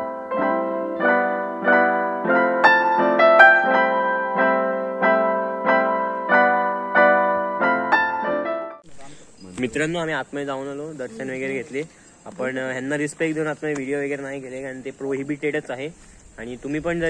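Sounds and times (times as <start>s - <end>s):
piano chords: 0.0s - 8.9s.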